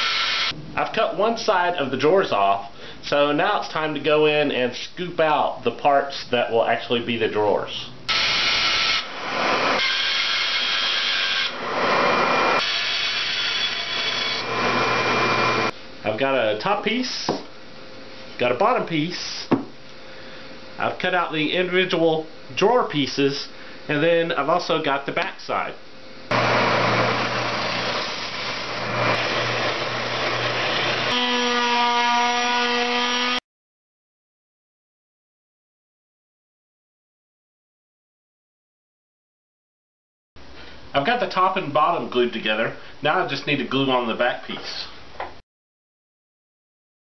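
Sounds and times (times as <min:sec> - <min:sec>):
bandsaw motor hum: 0:08.1 - 0:15.7, 0:26.3 - 0:33.4
palm sander whine: 0:08.1 - 0:15.7, 0:26.3 - 0:33.4.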